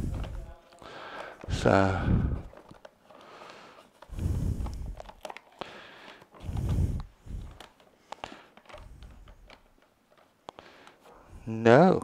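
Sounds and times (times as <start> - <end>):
plastic canister rubbing: 0.0 - 11.2
small clicks and taps: 2.4 - 11.1.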